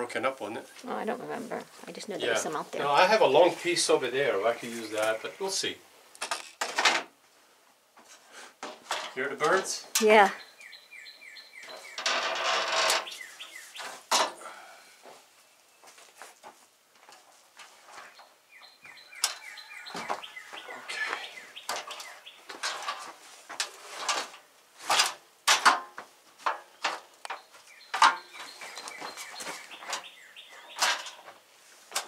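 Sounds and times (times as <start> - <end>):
birds chirping: 0.0 - 5.8, 9.2 - 16.0, 17.6 - 23.1, 26.6 - 31.4
metal ladder knocks and clanks: 8.6 - 9.6, 21.7 - 28.4, 30.8 - 32.0.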